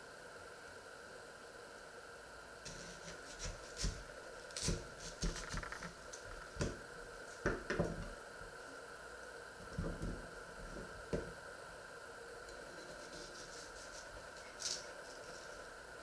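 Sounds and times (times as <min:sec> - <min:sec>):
steady background hum: 0:00.0 - 0:16.0
clicks knocks and rustles: 0:05.2 - 0:06.0.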